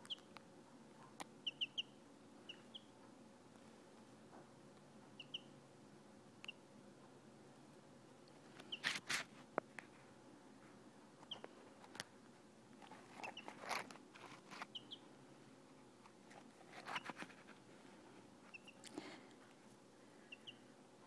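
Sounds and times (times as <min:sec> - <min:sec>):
chicks peeping: 0:00.0 - 0:00.3, 0:01.1 - 0:03.1, 0:05.0 - 0:05.6, 0:08.5 - 0:09.0, 0:11.2 - 0:11.6, 0:12.9 - 0:15.2, 0:18.4 - 0:19.0, 0:20.2 - 0:20.7.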